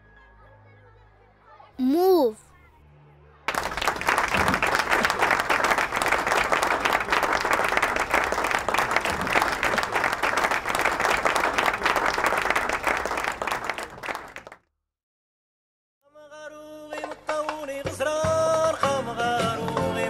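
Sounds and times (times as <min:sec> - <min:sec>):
group of people applauding: 0:03.5 - 0:14.6.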